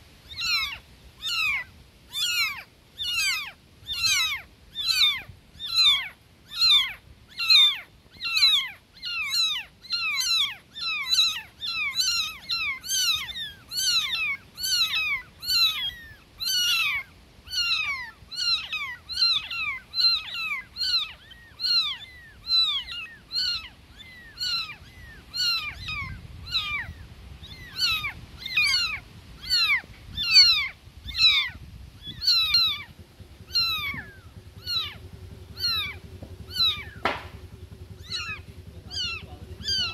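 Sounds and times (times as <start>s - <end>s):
kittens meowing: 0.2s - 39.9s.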